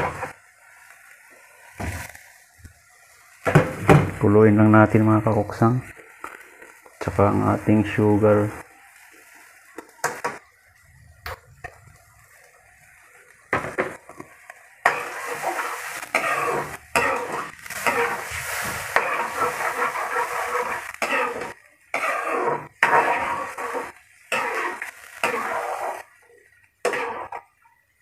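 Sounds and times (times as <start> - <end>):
metal ladle scraping frying pan: 14.8 - 26.0, 26.8 - 27.5.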